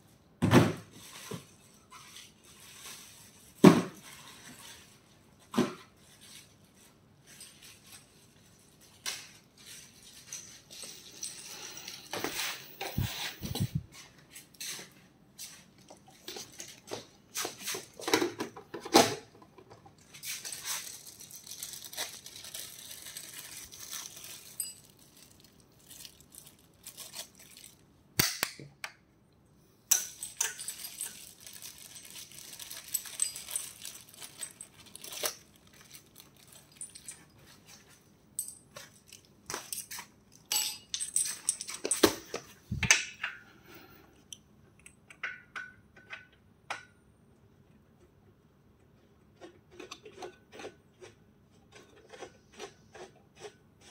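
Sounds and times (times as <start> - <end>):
plastic bag crinkling: 20.2 - 27.9, 30.2 - 37.7.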